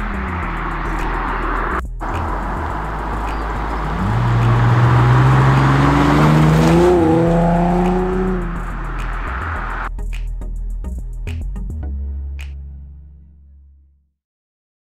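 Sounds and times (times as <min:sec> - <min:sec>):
car engine driving past: 0:00.0 - 0:09.9.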